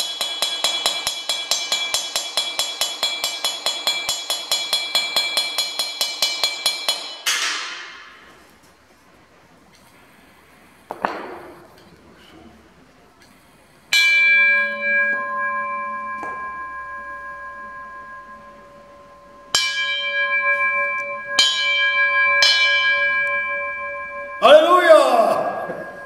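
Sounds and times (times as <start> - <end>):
iron sound bowl ringing: 0.0 - 8.3, 13.9 - 26.0.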